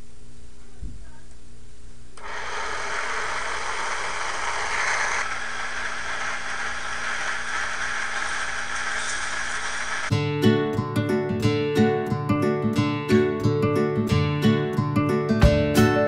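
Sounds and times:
toy motor running: 2.2s - 10.1s.

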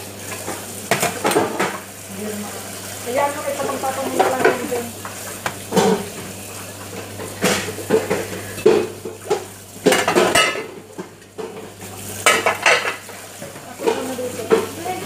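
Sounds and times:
dishes and cutlery clattering: 7.1s - 14.8s.

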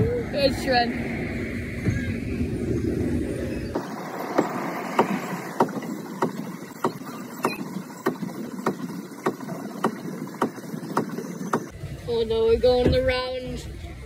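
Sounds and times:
low rumble: 0.0s - 14.0s
ride boat clacking: 3.7s - 11.8s.

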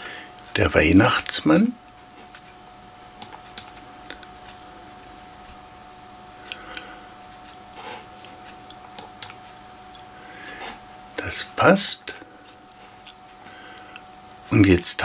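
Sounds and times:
faint steady whine: 0.0s - 15.0s
room hiss: 0.0s - 15.0s
computer mouse clicking: 3.2s - 4.6s, 8.6s - 9.4s.

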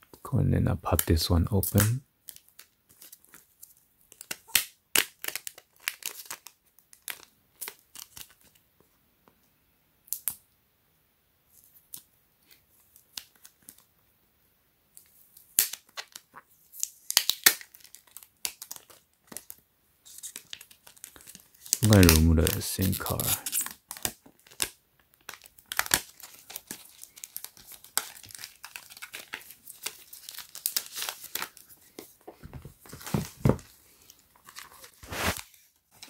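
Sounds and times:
plastic wrap crinkling and tearing: 1.0s - 8.6s, 15.3s - 32.2s, 32.8s - 36.0s.

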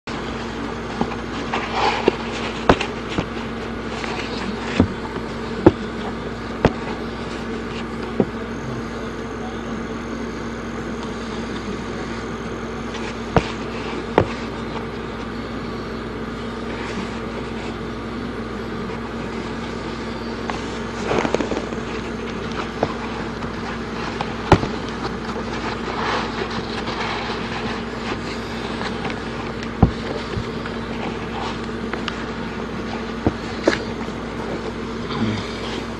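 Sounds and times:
steady hum: 0.0s - 35.9s
sneaker handling clicks and knocks: 1.0s - 7.0s, 13.0s - 15.3s, 20.8s - 34.7s.

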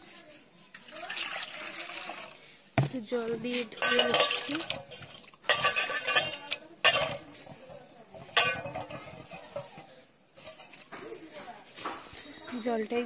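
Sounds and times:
water splashing in a basin: 0.7s - 2.4s, 3.8s - 7.2s.

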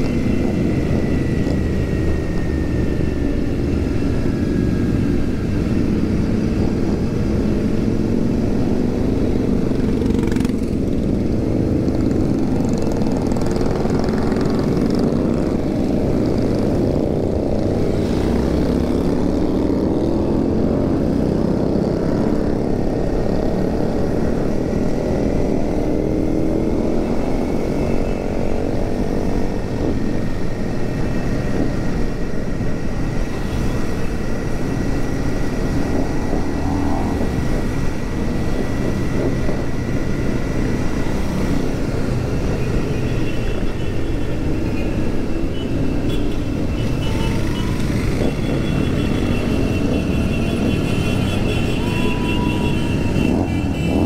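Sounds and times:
motorcycle engine cruising: 0.0s - 54.0s
other motorcycles: 0.0s - 54.0s
wind noise on microphone: 27.1s - 42.6s, 44.3s - 49.2s.

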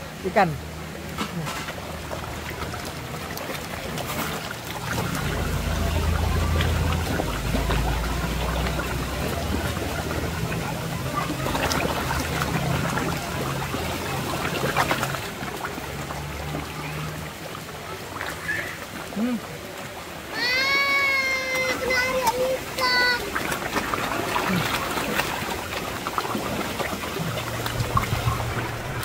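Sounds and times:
low mechanical hum: 0.0s - 15.4s, 27.2s - 29.0s
trickling water: 0.0s - 29.0s
fish splashing at water surface: 0.1s - 29.0s.

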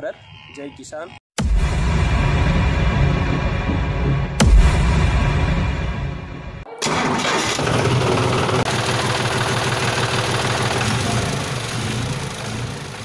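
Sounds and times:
tractor engine rumbling: 6.8s - 13.0s.

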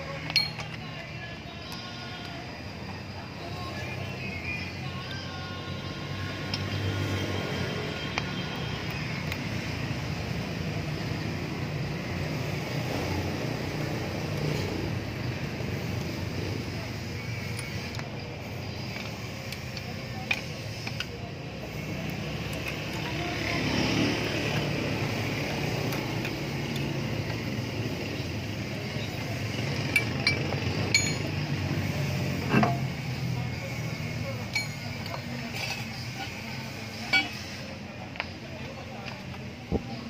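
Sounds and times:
steady background noise: 0.0s - 40.0s
socket wrench and lug nut clicks: 0.2s - 0.9s.

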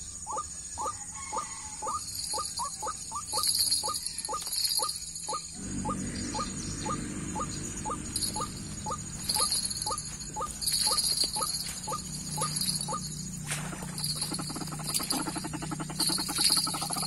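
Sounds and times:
bird calling short rising notes: 4.8s - 13.0s.

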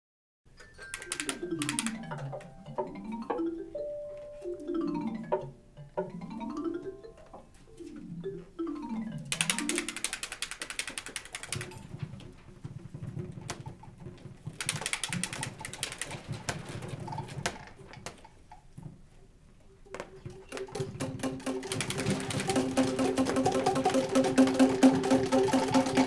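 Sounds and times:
cartoon music: 1.0s - 10.1s
wing-flapping flutter: 9.3s - 12.0s, 14.4s - 17.6s, 20.5s - 26.0s.

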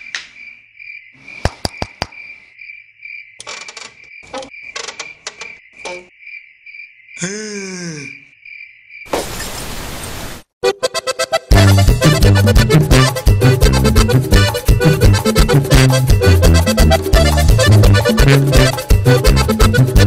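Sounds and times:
crickets chirping: 0.0s - 9.5s.

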